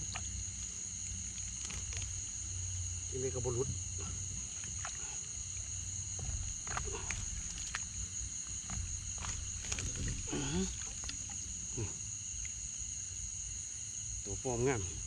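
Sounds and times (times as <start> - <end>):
high-pitched insect chorus: 0.0 - 15.0
clicks and rustles: 6.2 - 11.5.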